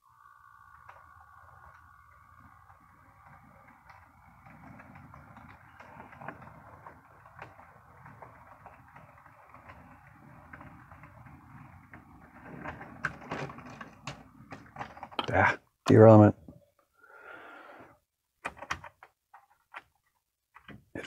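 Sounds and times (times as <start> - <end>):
model train motor hum: 0.0 - 15.1
wheels clicking over rail joints: 0.6 - 16.3.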